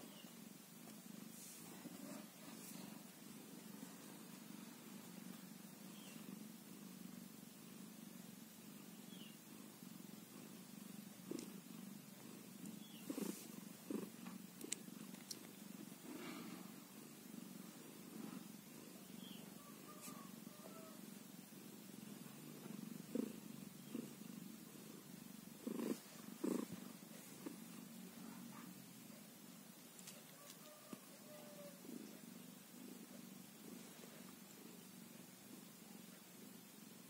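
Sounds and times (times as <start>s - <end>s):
cat purring: 0.0s - 37.0s.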